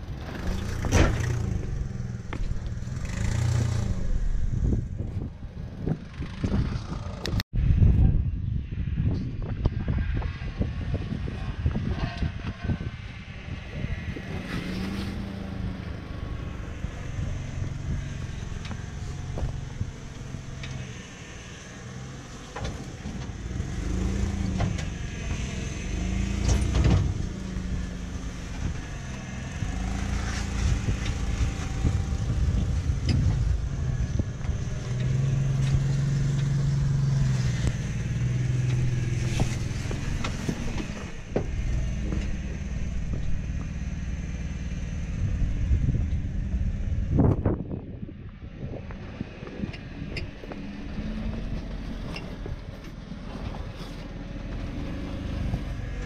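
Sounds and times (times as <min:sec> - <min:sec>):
car engine revving: 0:00.0 - 0:07.4, 0:13.2 - 0:47.6.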